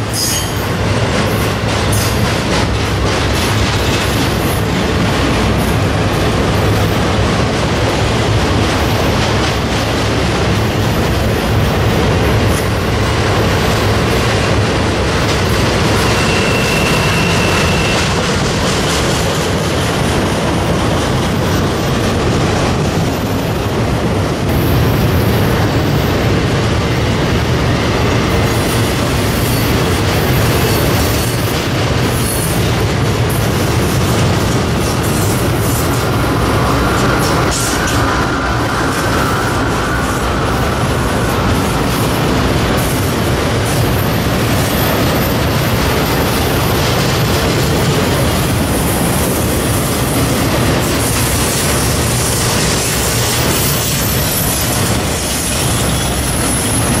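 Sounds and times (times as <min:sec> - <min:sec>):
train wheels rumbling on rails: 0:00.0 - 0:57.0
high wheel squeal: 0:00.1 - 0:00.7, 0:15.9 - 0:18.2, 0:52.8 - 0:57.0.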